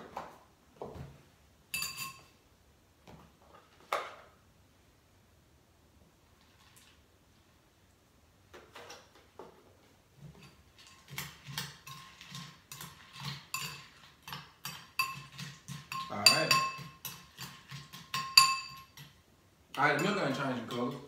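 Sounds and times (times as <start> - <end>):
spoon clinking against bowl: 1.7 - 2.3, 10.4 - 19.1, 19.8 - 21.0.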